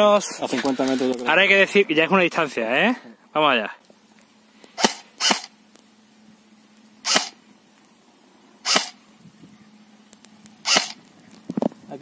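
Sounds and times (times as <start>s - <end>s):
airsoft rifle shots: 4.8s - 5.5s, 7.0s - 7.4s, 8.6s - 9.0s, 10.6s - 11.0s.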